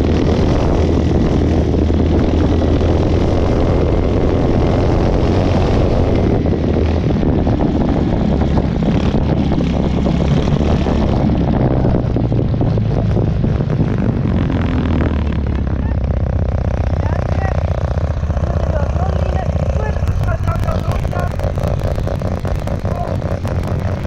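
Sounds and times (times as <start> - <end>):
tractor engine running: 0.0 - 24.0.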